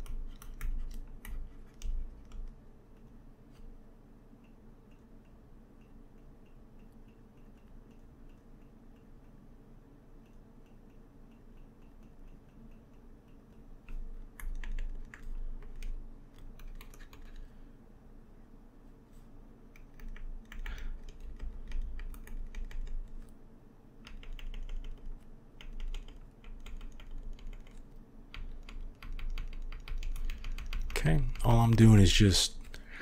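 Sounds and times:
faint steady hum: 0.0 - 33.0.

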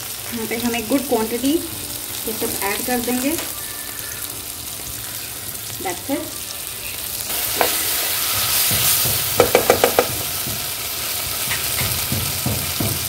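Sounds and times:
vegetables sizzling in a pan: 0.0 - 13.0
spatula knocking against pan: 8.7 - 10.7.

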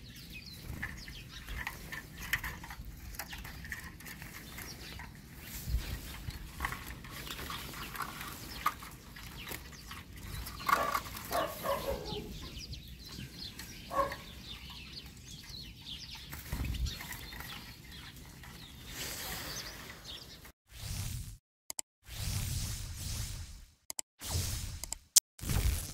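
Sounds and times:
finches calling: 0.0 - 20.5
birds fluttering: 0.0 - 21.2
wooden trap rustling and knocking: 0.5 - 18.8.

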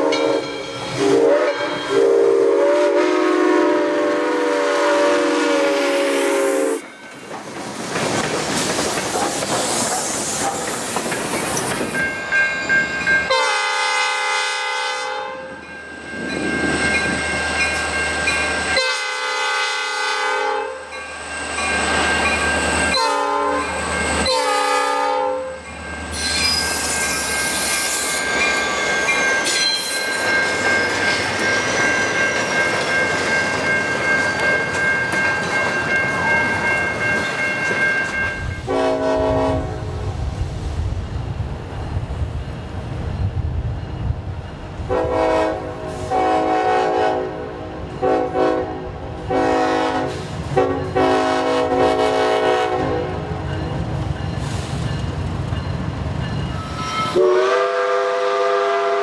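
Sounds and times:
train air horn: 0.0 - 6.8, 13.3 - 15.6, 18.8 - 20.9, 22.9 - 25.6, 38.7 - 40.1, 44.9 - 53.3, 56.7 - 59.0
steam train rushing past: 0.0 - 59.0
train wheel clatter: 6.8 - 13.3, 53.4 - 57.2
high wheel squeal: 25.9 - 32.3, 56.3 - 57.2.

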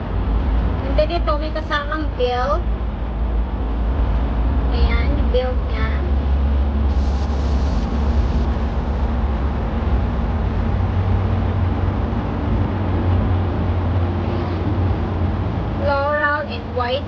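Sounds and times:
low rumbling: 0.0 - 17.0
even hiss: 6.0 - 11.9.

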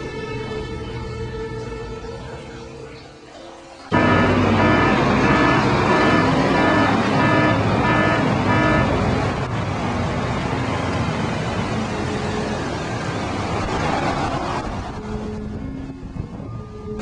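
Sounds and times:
pulsing pitched tone: 3.9 - 9.4
vehicle running close by: 3.9 - 16.1.

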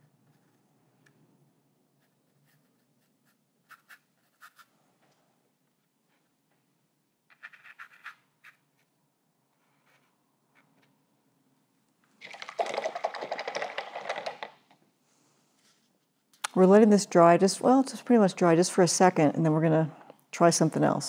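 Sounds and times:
paintbrush scratching on paper: 2.0 - 4.7.

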